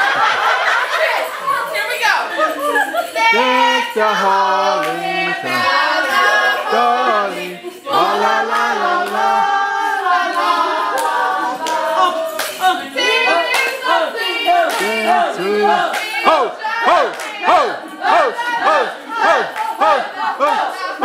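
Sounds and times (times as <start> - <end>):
voices singing together: 0.0 - 21.0
sharp claps: 15.9 - 17.8.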